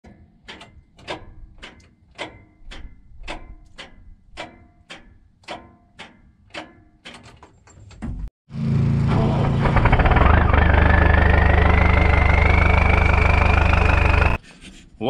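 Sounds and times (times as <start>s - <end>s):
starter motor clicking: 9.2s - 14.4s.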